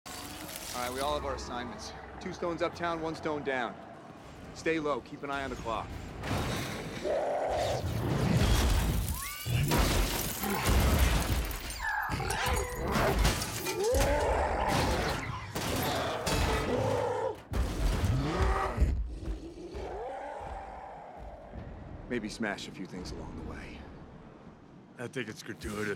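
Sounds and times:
growls and cries: 0:06.8 - 0:21.9
crashes and shattering: 0:07.8 - 0:16.8.

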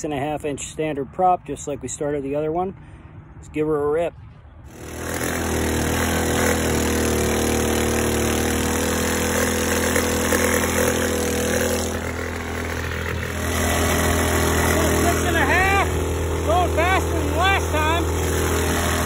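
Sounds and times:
boat motor running hard: 0:04.7 - 0:19.0.

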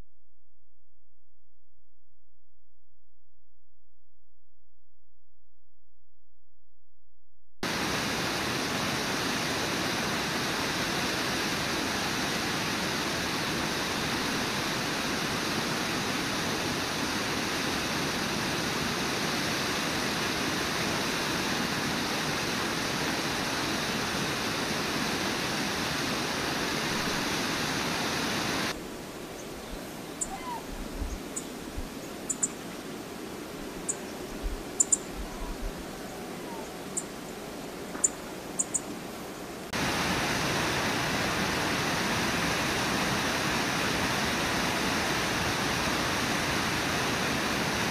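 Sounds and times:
whitewater rushing over falls: 0:07.6 - 0:28.8, 0:39.7 - 0:47.9.

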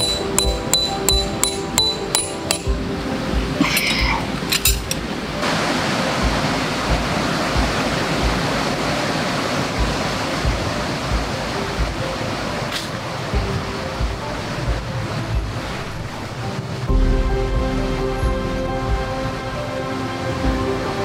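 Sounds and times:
mallet striking metal peg: 0:00.0 - 0:02.8
background music with beat: 0:00.0 - 0:05.4, 0:06.2 - 0:09.0, 0:09.7 - 0:21.0
steady rushing noise: 0:00.0 - 0:21.0.

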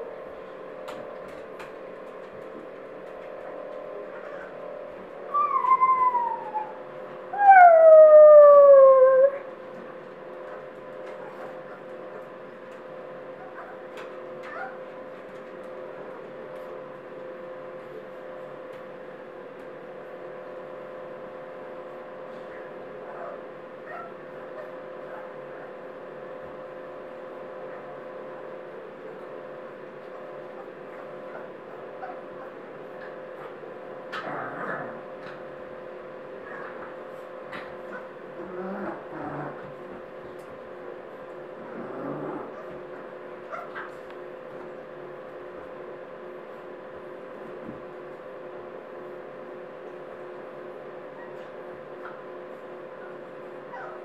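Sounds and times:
appliance hum with hiss: 0:00.0 - 0:54.0
puppy howling: 0:05.3 - 0:09.5.

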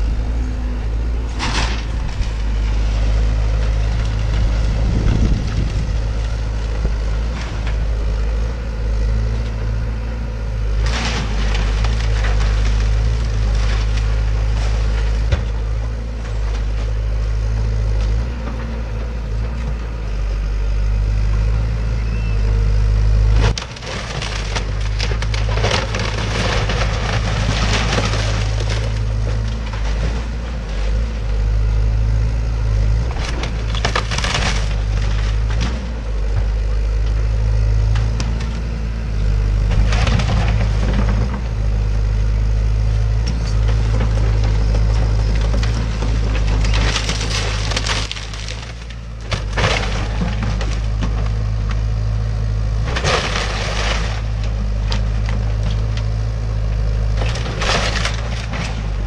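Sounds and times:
wood splintering and crunching: 0:00.0 - 0:19.9, 0:23.0 - 0:59.0
excavator diesel engine running: 0:00.0 - 0:59.0.

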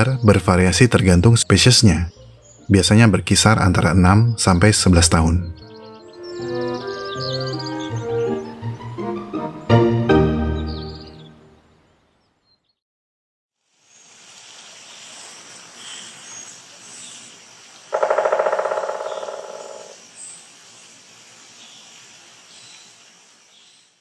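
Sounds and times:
distant bird calls: 0:00.0 - 0:12.7, 0:14.8 - 0:20.8
woodpecker drumming: 0:17.8 - 0:20.0.

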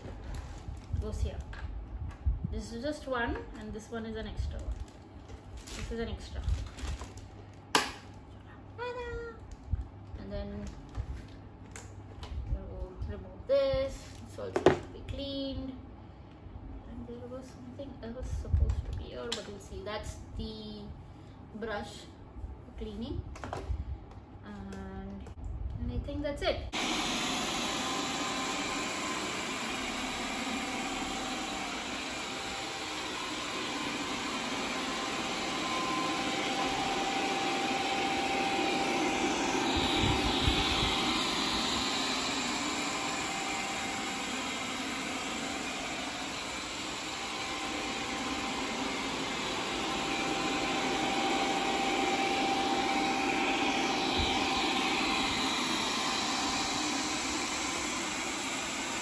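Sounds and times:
robot vacuum whirring: 0:26.8 - 0:59.0.

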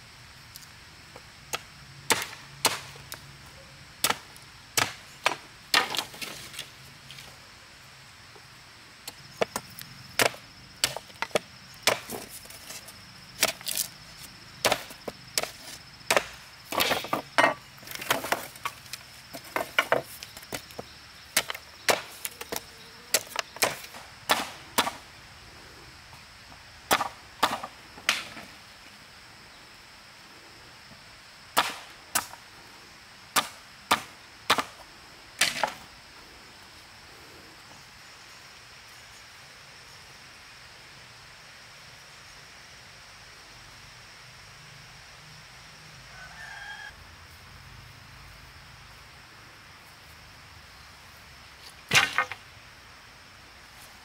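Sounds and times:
chopping strikes on wood: 0:01.5 - 0:02.9, 0:04.0 - 0:06.3, 0:10.2 - 0:12.2, 0:14.6 - 0:18.5, 0:23.1 - 0:25.0, 0:26.9 - 0:28.4, 0:31.6 - 0:32.4, 0:33.4 - 0:34.8, 0:51.9 - 0:52.4.

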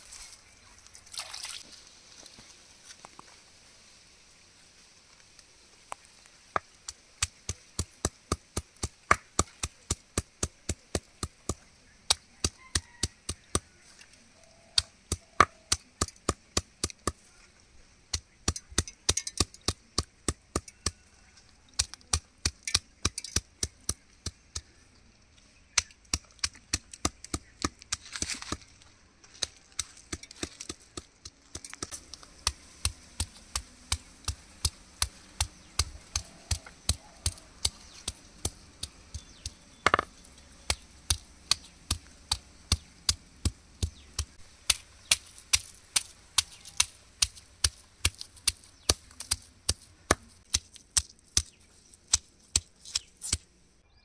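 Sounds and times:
hammer knocking on stone: 0:30.1 - 0:40.1.

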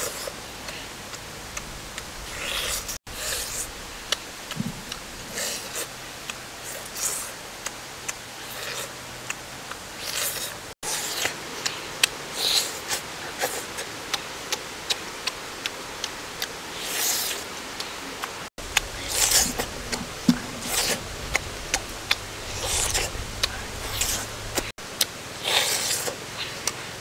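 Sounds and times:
slurping: 0:01.5 - 0:07.4, 0:16.4 - 0:24.7, 0:25.4 - 0:26.8
wet lip smacks and clicks: 0:14.1 - 0:26.8.

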